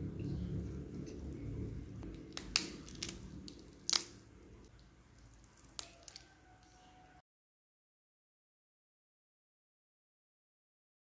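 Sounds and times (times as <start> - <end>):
bones cracking: 2.0 - 6.8
cooked chicken torn by hand: 2.0 - 6.8.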